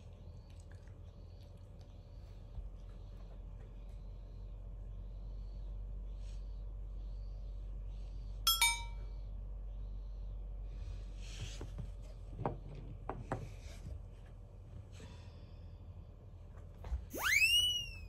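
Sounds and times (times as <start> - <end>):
low steady room hum: 0.0 - 18.0
bright ringing clinks: 8.5 - 9.0.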